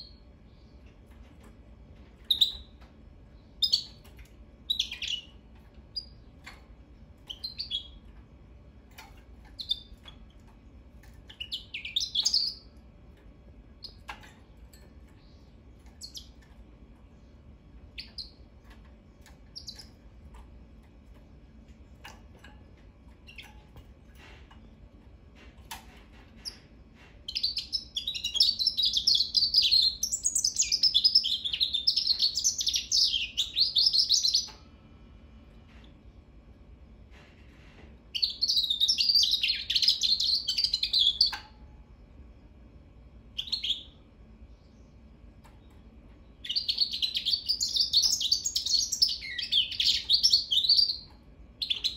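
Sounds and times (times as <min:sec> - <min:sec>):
finch chirping: 0:02.2 - 0:02.9, 0:03.5 - 0:06.6, 0:07.2 - 0:08.1, 0:09.0 - 0:10.4, 0:11.0 - 0:12.7, 0:13.8 - 0:14.3, 0:15.1 - 0:16.5, 0:17.9 - 0:20.0, 0:23.2 - 0:23.6, 0:27.3 - 0:34.6, 0:38.1 - 0:41.5, 0:43.4 - 0:44.0, 0:46.4 - 0:51.9
finch singing song: 0:02.2 - 0:06.6, 0:07.2 - 0:08.2, 0:08.9 - 0:10.4, 0:11.0 - 0:12.8, 0:13.8 - 0:16.5, 0:17.9 - 0:20.0, 0:23.1 - 0:23.7, 0:26.4 - 0:34.6, 0:38.1 - 0:41.6, 0:43.3 - 0:51.9.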